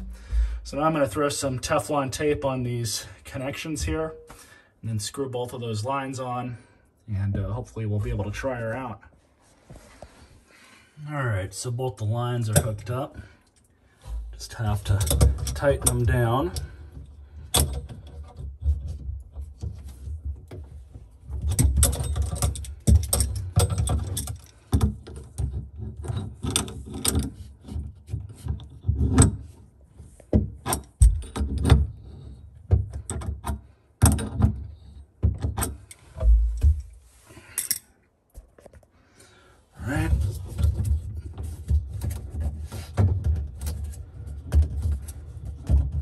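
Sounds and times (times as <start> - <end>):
dull handling bumps: 0.0 - 1.0, 28.1 - 37.2
pliers clicking and scraping metal: 37.5 - 37.9.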